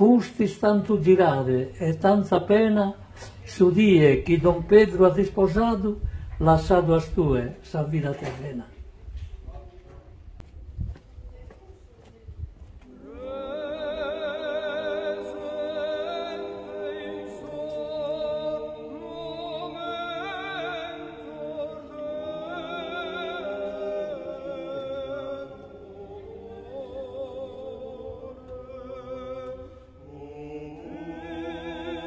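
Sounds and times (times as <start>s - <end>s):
choir singing with vibrato: 0.0s - 6.1s, 12.9s - 32.0s
faint low rumble: 0.8s - 7.9s.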